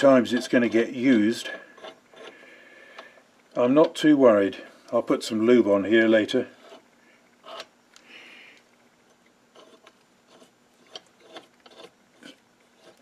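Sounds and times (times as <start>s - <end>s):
metal screw scrape: 0.2s - 2.4s, 6.6s - 7.7s, 9.5s - 13.0s.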